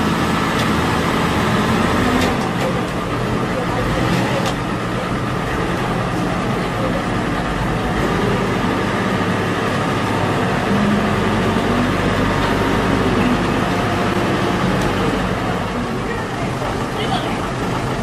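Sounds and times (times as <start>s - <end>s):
forklift engines running: 0.0s - 18.0s.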